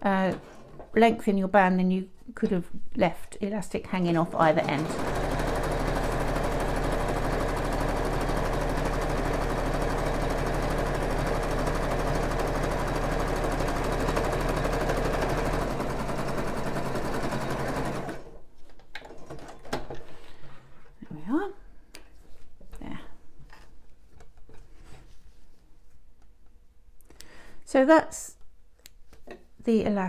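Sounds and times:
sewing machine stitching: 4.0 - 18.4.

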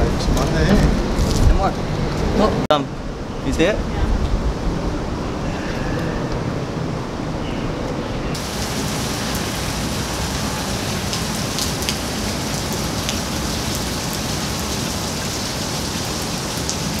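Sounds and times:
steady rain falling: 8.3 - 17.0.

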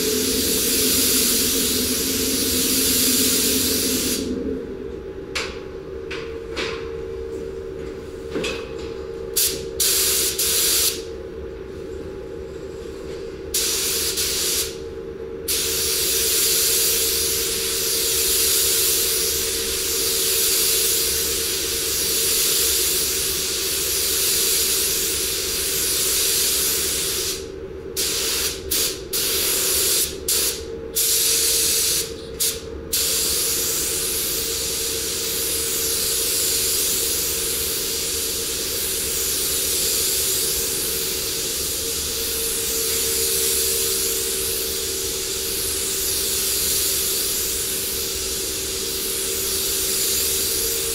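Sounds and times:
spray gun hissing: 0.0 - 4.4, 13.6 - 14.8, 28.0 - 50.9
steady hum: 0.0 - 50.9.

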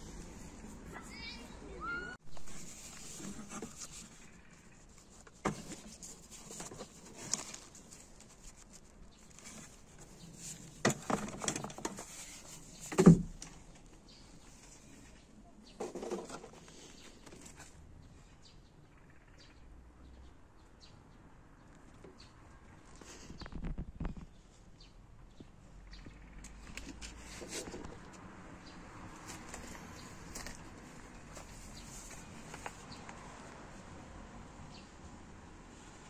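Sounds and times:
rummaging through junk: 5.0 - 13.8.

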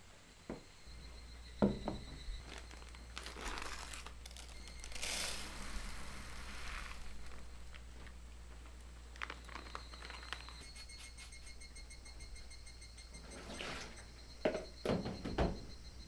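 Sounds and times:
rice bag crinkling: 2.4 - 11.0
rice pouring into plastic bowl: 2.6 - 7.4.

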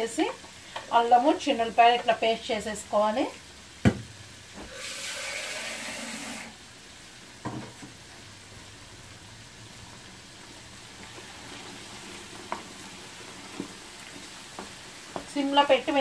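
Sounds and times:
chicken sizzling in hot oil: 0.0 - 16.0.

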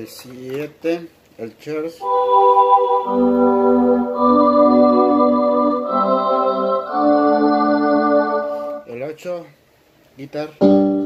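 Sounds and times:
synthesizer organ chords: 2.0 - 8.9.

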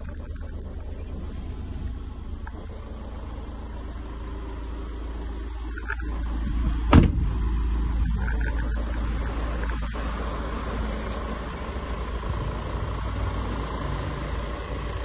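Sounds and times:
low rumble: 0.0 - 15.0
van door slamming: 6.7 - 7.4.

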